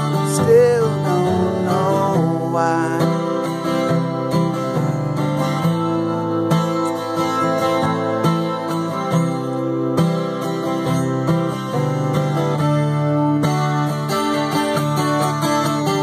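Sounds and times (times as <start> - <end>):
person singing: 0.0 - 3.9
acoustic guitar strumming: 0.0 - 16.0.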